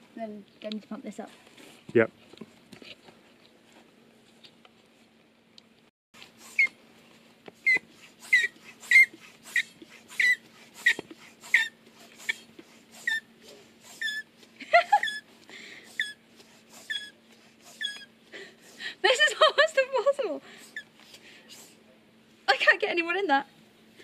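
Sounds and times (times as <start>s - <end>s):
floor pump squeaking strokes: 6.2s - 6.8s, 7.6s - 18.1s.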